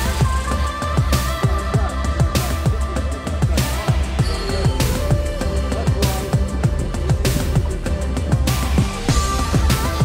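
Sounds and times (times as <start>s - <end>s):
electronic music: 0.0s - 10.0s
sustained bass: 0.0s - 10.0s.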